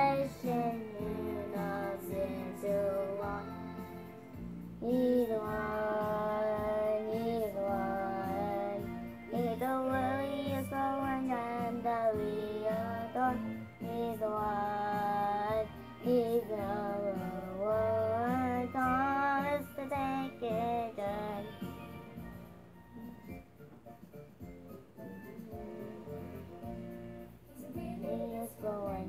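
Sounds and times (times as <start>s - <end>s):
young boy singing: 0.0s - 4.0s, 4.8s - 21.6s, 27.5s - 29.0s.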